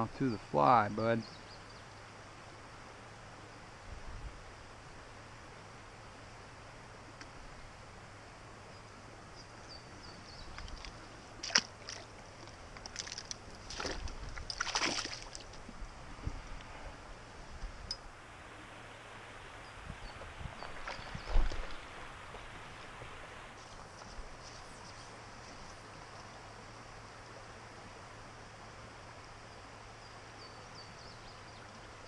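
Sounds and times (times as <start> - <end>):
creek rushing: 1.6 - 32.0
water splashing: 10.4 - 15.8, 20.1 - 24.1.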